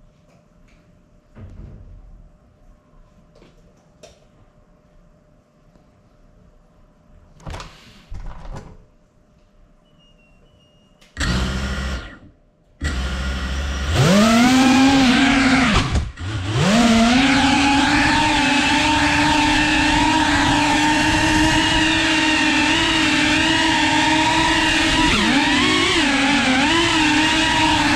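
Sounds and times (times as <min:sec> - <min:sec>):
drone motors whining: 0:11.2 - 0:27.9.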